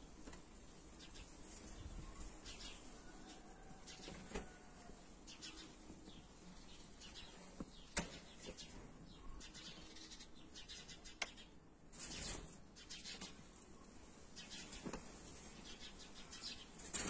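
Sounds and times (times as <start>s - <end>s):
bird chirping: 5.3s - 16.9s.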